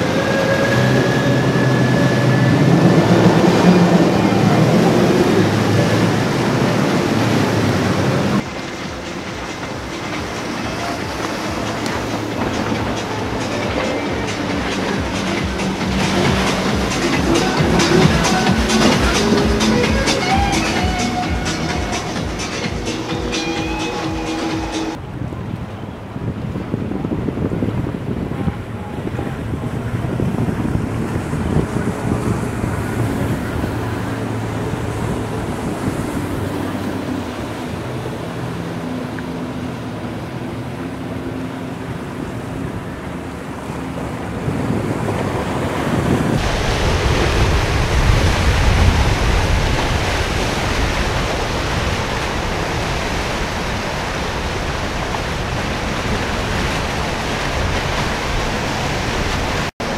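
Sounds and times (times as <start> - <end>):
outboard motor running: 0.0 - 25.0
rush of waves and wake: 0.0 - 59.9
surf: 0.0 - 59.9
wind on microphone: 0.0 - 59.9.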